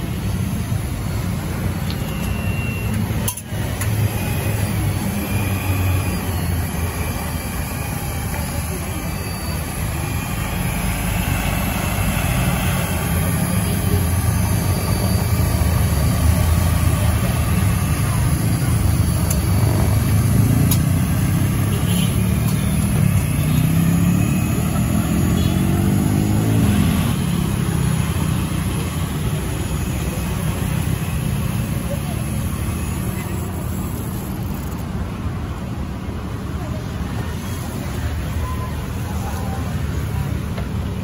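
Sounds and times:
scooters and cars driving past: 0.0s - 41.0s
engine speeding up: 3.4s - 32.8s.

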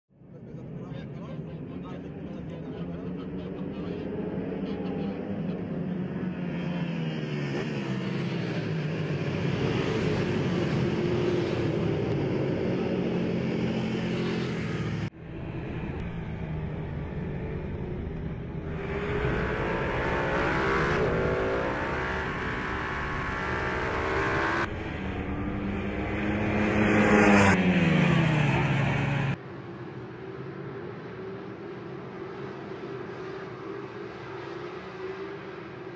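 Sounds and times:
racing motorcycles at full throttle: 0.6s - 35.9s
motorcycle passing close: 2.1s - 29.4s.

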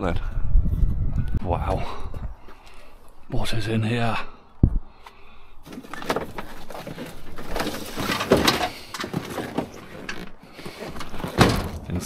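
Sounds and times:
knocks clicks and scraping: 5.6s - 12.0s
rummaging through electrical scrap: 5.6s - 12.0s
cardboard box being shifted: 5.7s - 11.4s.

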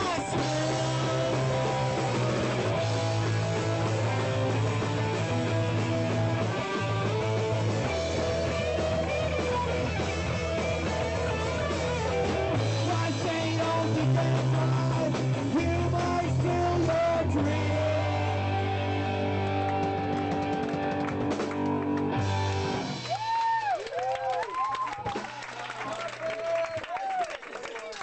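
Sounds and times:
person singing: 0.0s - 2.5s, 12.6s - 19.4s
punk rock band playing: 0.0s - 23.4s.

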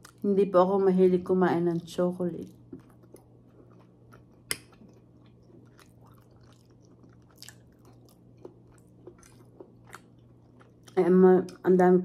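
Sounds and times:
person chewing food: 0.0s - 0.2s, 2.4s - 11.7s.

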